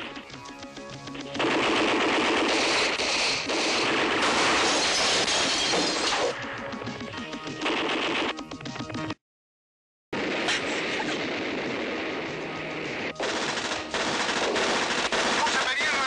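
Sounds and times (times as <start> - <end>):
film score music: 0.0 - 4.4, 6.1 - 9.2, 10.8 - 16.0
machine-gun fire: 1.3 - 6.3, 7.6 - 8.4, 12.9 - 16.0.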